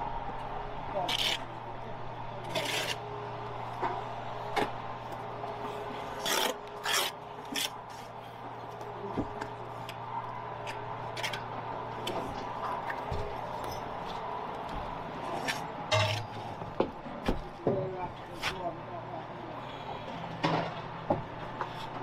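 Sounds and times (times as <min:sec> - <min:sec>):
trowel scraping brickwork: 0:01.0 - 0:01.5, 0:02.4 - 0:03.0, 0:06.0 - 0:08.0, 0:15.4 - 0:16.4.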